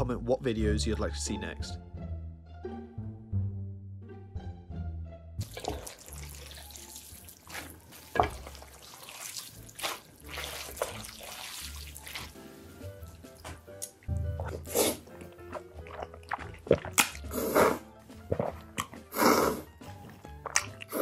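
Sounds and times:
background music: 0:00.0 - 0:21.0
noodles squelching in sauce: 0:05.4 - 0:21.0.

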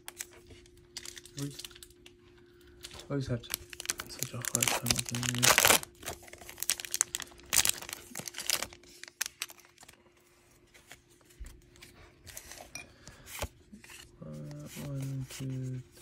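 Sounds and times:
foil wrapper crinkling: 0:00.0 - 0:01.9, 0:02.8 - 0:10.0
cards rustling: 0:02.8 - 0:16.0.

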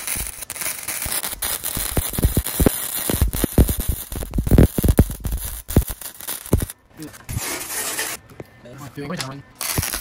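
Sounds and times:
welder arc hissing and crackling: 0:00.0 - 0:06.8, 0:09.6 - 0:10.0.

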